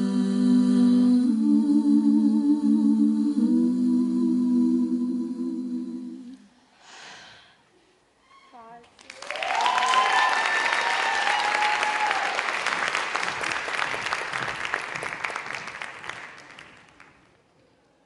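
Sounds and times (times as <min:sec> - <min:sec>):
audience applauding: 0:09.0 - 0:17.2
audience cheering: 0:09.1 - 0:14.8.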